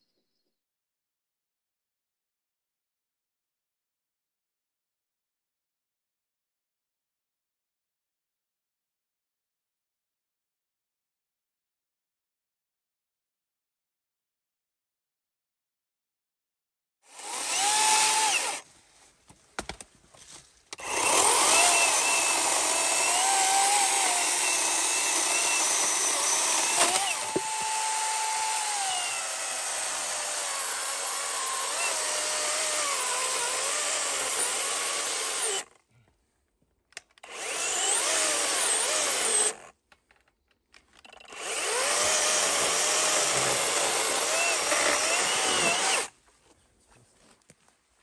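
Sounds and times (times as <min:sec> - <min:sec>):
electric chainsaw cutting log: 0:17.1 - 0:18.6, 0:20.8 - 0:35.8, 0:37.2 - 0:39.7, 0:41.2 - 0:46.1.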